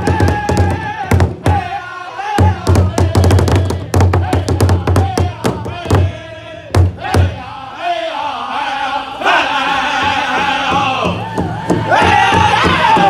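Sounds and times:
large hide drum beating: 0.0 - 1.8, 2.4 - 7.4, 10.0 - 13.0
men singing a chant: 0.0 - 13.0.

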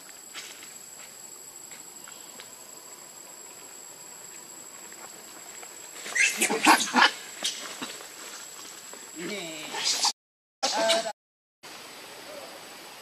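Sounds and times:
baby monkey squeak: 6.1 - 7.6
baby monkey squealing: 6.1 - 7.6.

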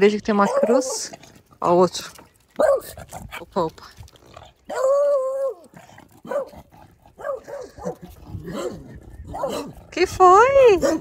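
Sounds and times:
small dog barking: 0.4 - 1.1, 2.6 - 3.0, 6.2 - 6.6, 7.2 - 9.8, 10.7 - 11.0.

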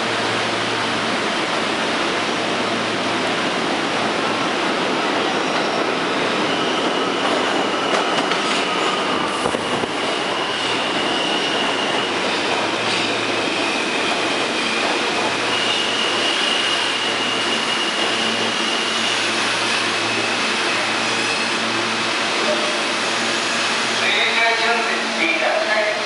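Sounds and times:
subway train wheels rumbling on rail: 0.0 - 26.0.

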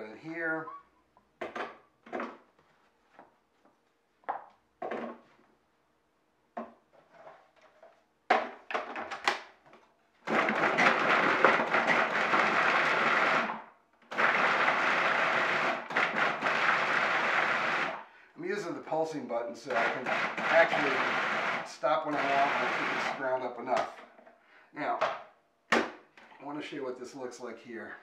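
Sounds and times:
food processor grinding: 10.3 - 18.0, 19.7 - 23.2.

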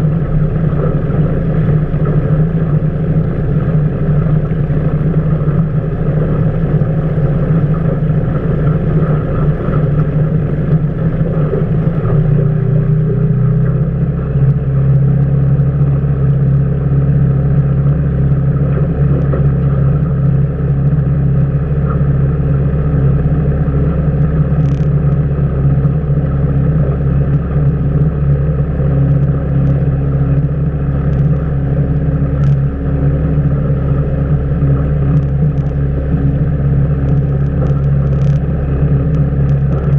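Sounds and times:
outboard motor running: 0.0 - 39.9.

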